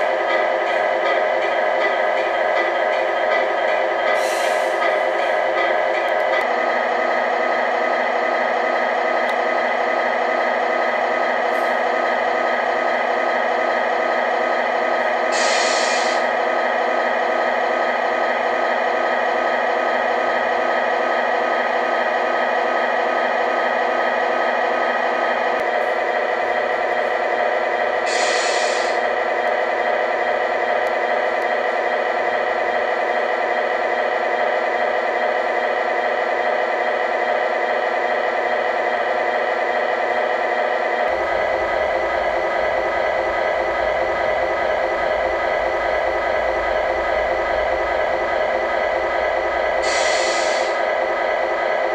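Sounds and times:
truck engine idling: 0.0 - 51.9
air brake hisses: 4.2 - 4.9, 15.3 - 16.3, 28.0 - 29.0, 49.8 - 50.8.

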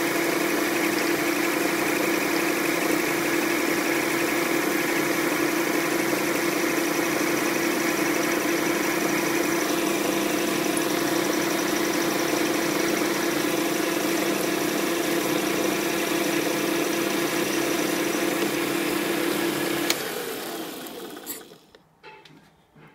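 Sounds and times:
metal lathe motor humming: 4.3 - 21.8
lathe switch click: 19.8 - 20.1.

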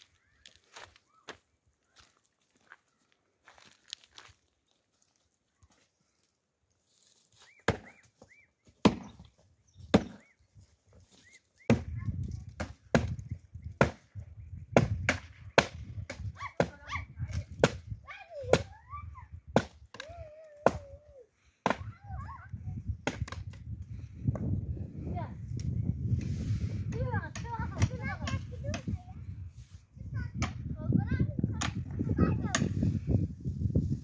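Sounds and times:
firewood being chopped: 7.6 - 10.3, 11.6 - 16.8, 17.5 - 17.9, 19.5 - 20.9, 21.6 - 21.9, 23.0 - 23.6.

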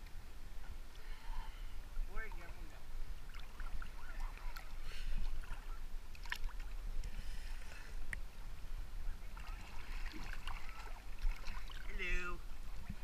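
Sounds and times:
water sloshing and lapping: 0.0 - 8.4, 9.0 - 13.0
small splashes and drips: 3.3 - 7.2, 9.3 - 13.0.

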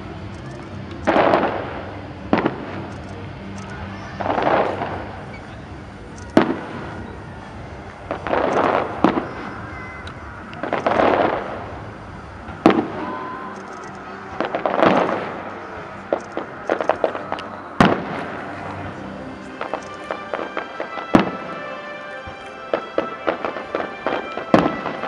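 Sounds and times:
crackling firework bursts: 0.0 - 25.0
firework shells bursting: 0.4 - 3.2, 7.9 - 25.0.

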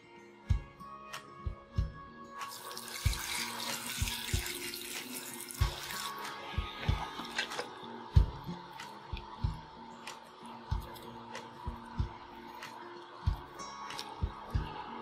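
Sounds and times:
music with thumping beat: 0.5 - 2.1, 3.0 - 15.0
tap water running into tub: 2.4 - 8.3.

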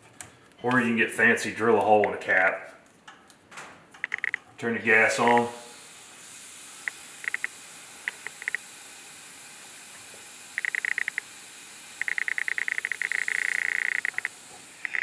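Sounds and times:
rapid ticking: 4.0 - 4.4, 6.8 - 8.6, 10.6 - 11.3, 12.0 - 15.0
gas hissing: 4.6 - 15.0.

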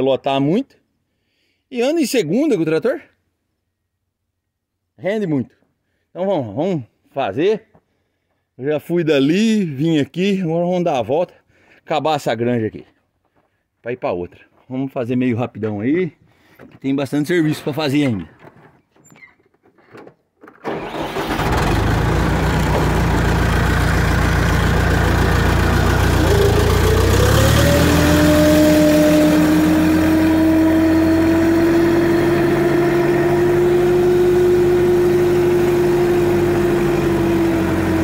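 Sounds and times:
tractor engine running: 20.7 - 38.0.

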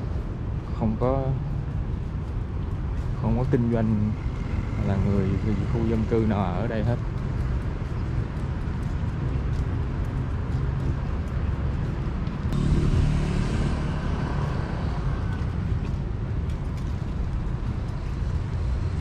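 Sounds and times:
traffic rumble: 0.0 - 19.0
vehicle passing: 12.4 - 19.0.

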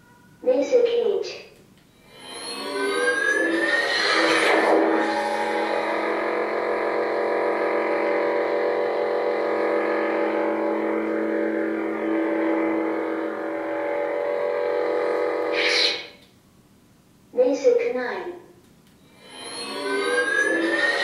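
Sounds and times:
lightsaber idle hum: 2.0 - 16.2, 19.1 - 21.0.

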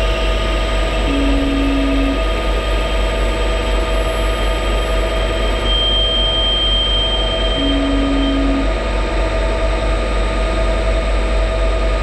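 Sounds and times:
thin high tone: 1.1 - 2.2, 5.7 - 8.8.

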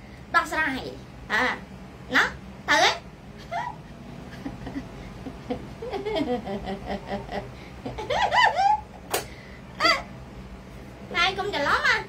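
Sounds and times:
woman laughing: 3.4 - 8.9.

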